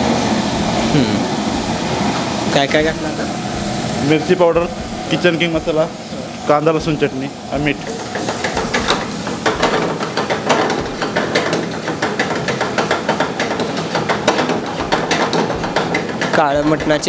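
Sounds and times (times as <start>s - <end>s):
meat sizzling in oil: 0.0s - 17.0s
ladle clicking against pan: 7.8s - 17.0s.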